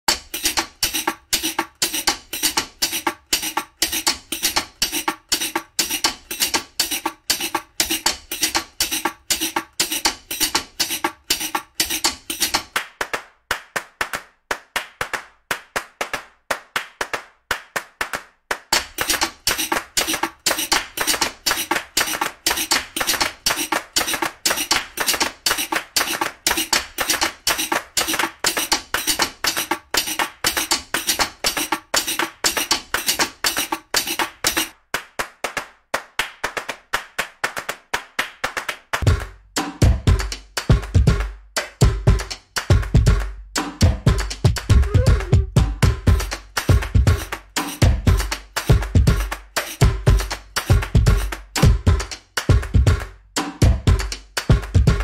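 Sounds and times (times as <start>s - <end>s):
percussive background music: 0.1s - 14.1s, 18.5s - 34.8s, 38.2s - 55.0s
bass: 39.0s - 55.0s.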